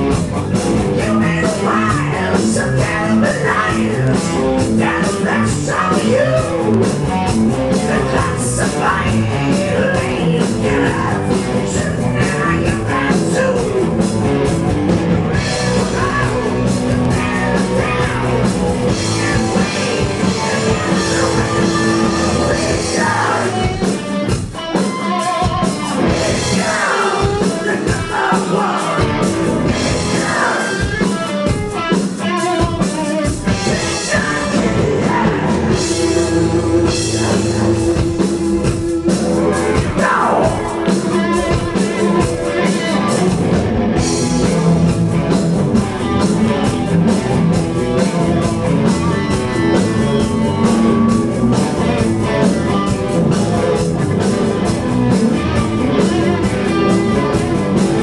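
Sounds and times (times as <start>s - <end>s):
live hard rock band: 0.0s - 58.0s
man singing: 0.7s - 7.0s, 7.7s - 14.1s, 15.4s - 23.8s, 24.9s - 31.2s, 32.4s - 43.5s.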